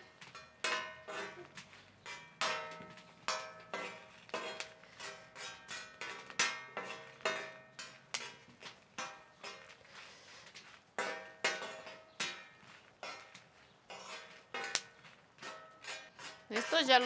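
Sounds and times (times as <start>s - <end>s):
ringing metallic taps: 0.0s - 8.4s
metal spoon scraping steel pan: 0.6s - 8.4s, 11.0s - 17.0s.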